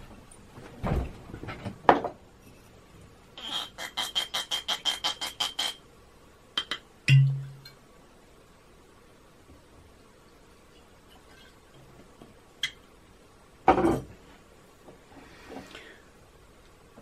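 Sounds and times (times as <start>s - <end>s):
glass bottle thump and clicks: 6.6s - 7.6s
bottle stopper popping: 6.6s - 7.8s.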